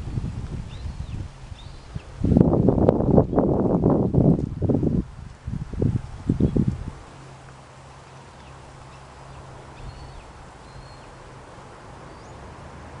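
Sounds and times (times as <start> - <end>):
wind through leaves: 0.0 - 13.0
faint bird chirps: 8.4 - 11.2.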